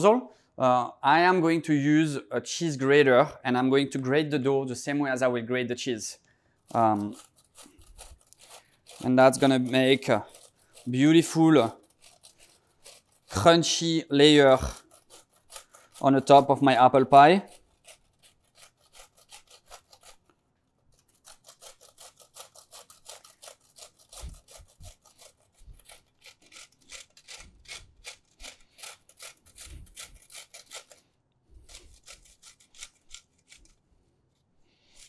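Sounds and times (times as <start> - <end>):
dough rasping on metal grater: 6.7 - 20.3, 20.9 - 33.7.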